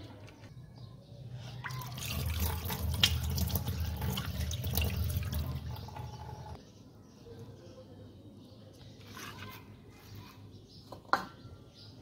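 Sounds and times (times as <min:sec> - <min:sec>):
tap water splashing into sink: 0:01.7 - 0:06.5.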